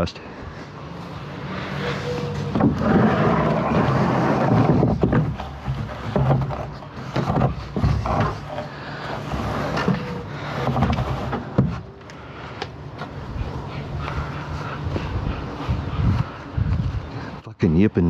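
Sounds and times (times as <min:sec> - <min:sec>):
plywood sheet knocking and scraping: 0:02.4 - 0:08.7.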